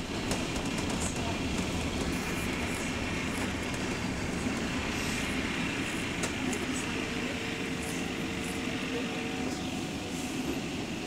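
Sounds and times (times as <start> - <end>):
loud clickety-clack knocking: 0.0 - 5.0
bus engine rumble: 0.0 - 11.0
faint steady whine: 0.0 - 11.0.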